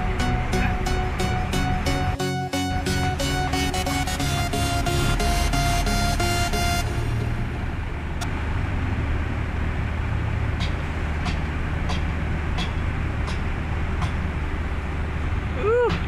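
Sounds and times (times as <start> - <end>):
music: 0.0 - 7.6
dump truck diesel engine: 0.0 - 16.0.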